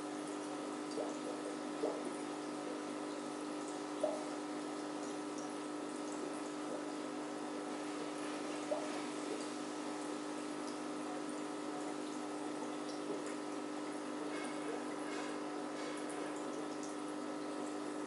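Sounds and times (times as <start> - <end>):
aquarium pump hum: 0.0 - 18.0
water trickling and bubbling: 0.0 - 18.0
short bubble plops: 0.9 - 4.4, 11.9 - 13.6.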